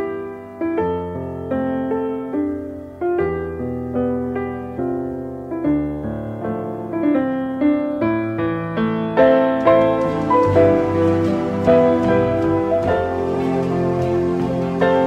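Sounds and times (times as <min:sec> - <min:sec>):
slow gentle piano music: 0:00.0 - 0:15.0.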